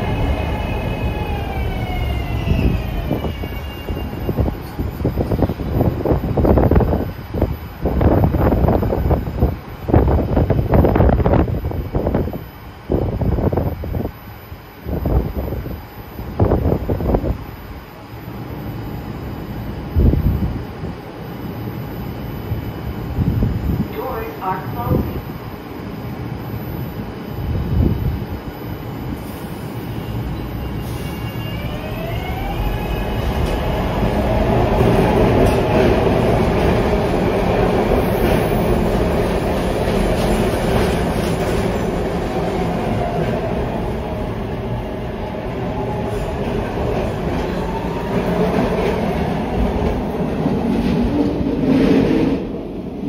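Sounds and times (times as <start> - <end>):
train wheels rumbling on rail: 29.2 - 53.0.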